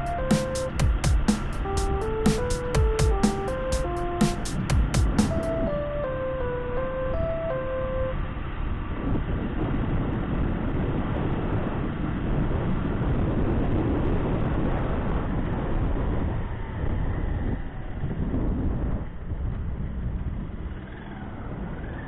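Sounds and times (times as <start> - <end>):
electronic beeping tune: 0.0 - 8.2
wind and road noise: 0.0 - 22.0.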